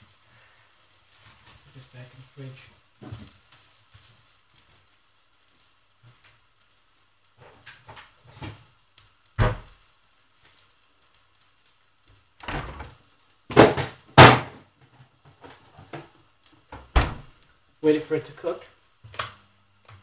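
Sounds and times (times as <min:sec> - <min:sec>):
refrigerator door shutting: 0:12.4 - 0:12.9, 0:16.9 - 0:17.2.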